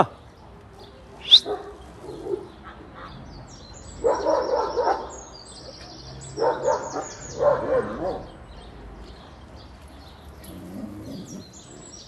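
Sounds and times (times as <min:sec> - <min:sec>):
birds chirping faintly: 0:00.0 - 0:12.0
sharp high rising cry: 0:01.2 - 0:01.5
dogs barking deeply: 0:01.2 - 0:08.8, 0:10.4 - 0:12.0.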